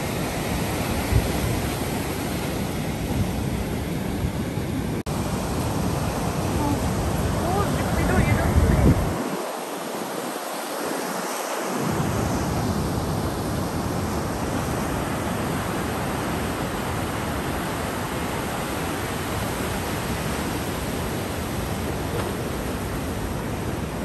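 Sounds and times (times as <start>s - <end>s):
low wind rumble: 0.0s - 10.2s
wind buffeting microphone: 0.0s - 10.9s
surf breaking on rocky shore: 5.0s - 24.0s.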